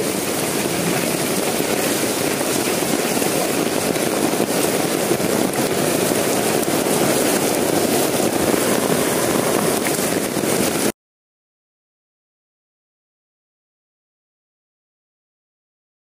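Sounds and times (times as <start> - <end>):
heavy rain on flooded street: 0.0 - 11.0.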